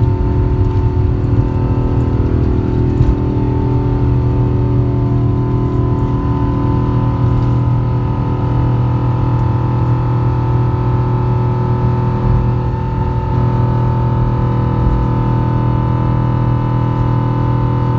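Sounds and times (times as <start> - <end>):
jet engines droning in cabin: 0.0 - 17.9.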